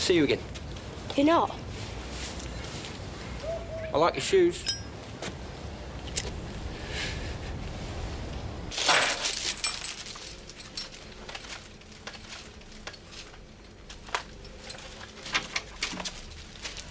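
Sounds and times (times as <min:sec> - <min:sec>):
low outdoor hum: 0:00.0 - 0:16.9.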